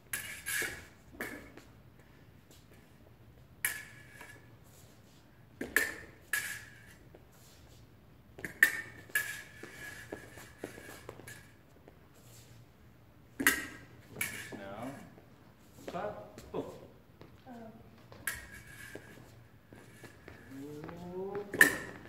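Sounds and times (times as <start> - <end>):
fencing blades clashing: 0.1 - 1.6, 3.6 - 4.5, 5.6 - 7.1, 8.4 - 11.6, 13.4 - 14.6, 18.1 - 20.5, 21.3 - 22.0.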